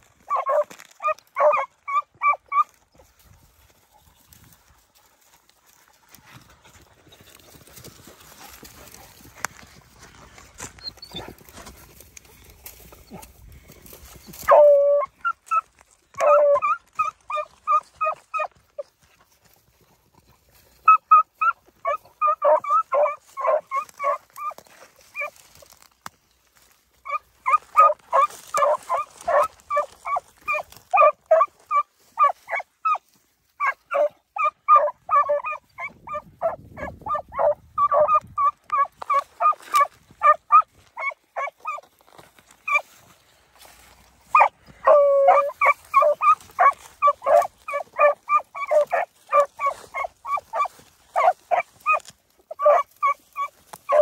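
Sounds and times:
hounds barking rapidly: 0:00.3 - 0:02.7, 0:14.4 - 0:18.5, 0:20.8 - 0:24.6, 0:27.0 - 0:33.0, 0:33.6 - 0:41.8, 0:44.3 - 0:54.0.

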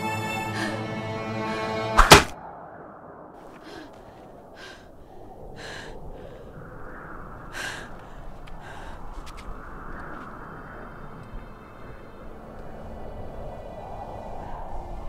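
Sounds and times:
orchestral film score chords: 0:00.0 - 0:02.3, 0:10.8 - 0:14.2
loud double hit: 0:02.0 - 0:02.4.

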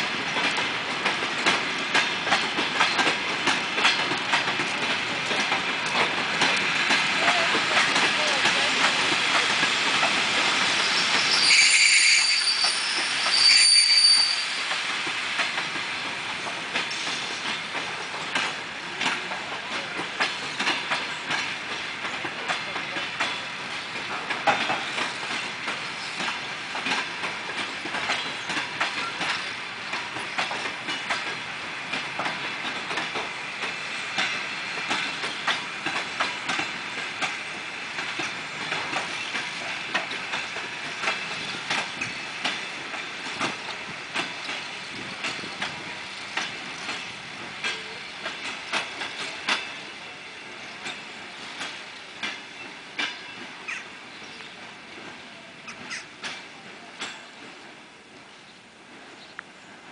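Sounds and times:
train wheels clicking over rail joints: 0:00.0 - 0:59.6
train brakes squealing: 0:10.6 - 0:15.0, 0:55.4 - 0:56.2.

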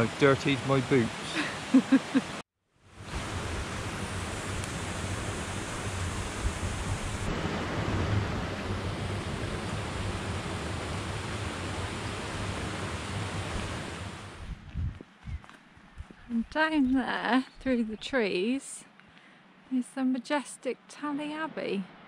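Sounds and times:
stream rushing over stones: 0:00.0 - 0:02.4.

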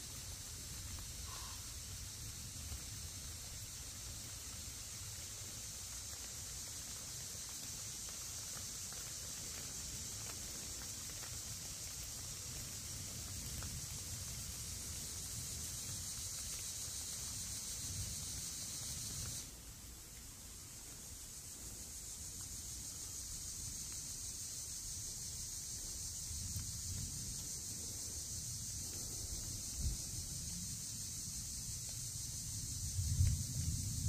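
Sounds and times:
insect chorus buzzing: 0:00.0 - 0:34.0
low wind rumble: 0:32.3 - 0:34.0.

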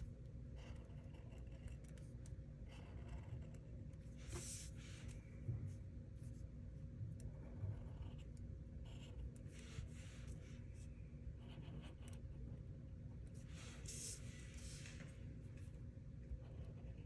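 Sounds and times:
low room hum: 0:00.0 - 0:17.0
marker drawing on paper: 0:02.7 - 0:05.2, 0:07.4 - 0:12.2, 0:13.4 - 0:15.1.

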